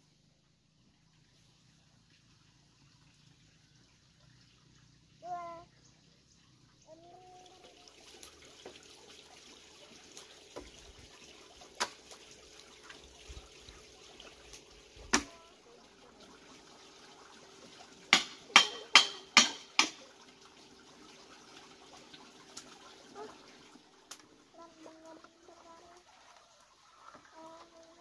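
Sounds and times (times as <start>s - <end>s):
machete chopping bamboo: 15.1s - 15.3s, 18.1s - 20.0s.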